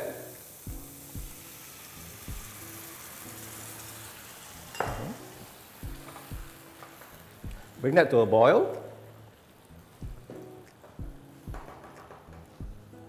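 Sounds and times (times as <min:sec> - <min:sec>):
sauce sizzling in frying pan: 0:00.0 - 0:13.0
spatula knocking on pan: 0:11.0 - 0:12.9.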